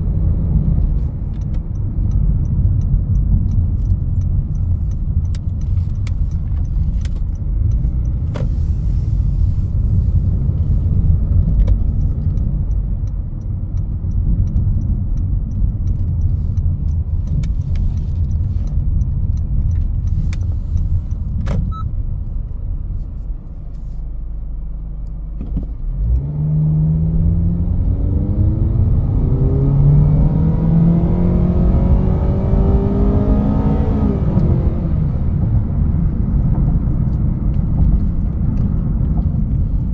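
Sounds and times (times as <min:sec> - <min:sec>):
road and tyre rumble: 0:00.0 - 0:39.9
car engine accelerating: 0:23.5 - 0:39.9.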